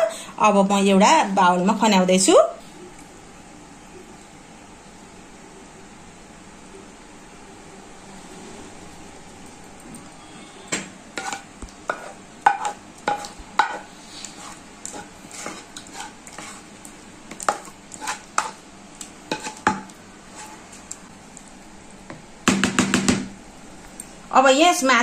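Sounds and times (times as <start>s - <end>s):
utensil scraping a metal pan: 11.2s - 16.7s, 17.4s - 18.6s, 19.3s - 20.7s.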